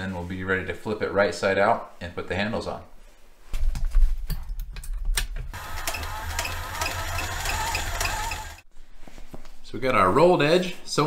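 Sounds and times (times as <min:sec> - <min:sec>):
sewing machine stitching: 0:05.5 - 0:08.6.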